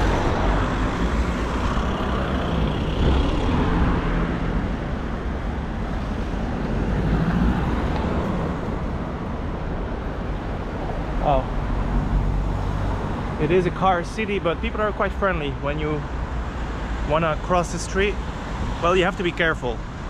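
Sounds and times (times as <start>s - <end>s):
cars driving past: 0.0s - 14.6s.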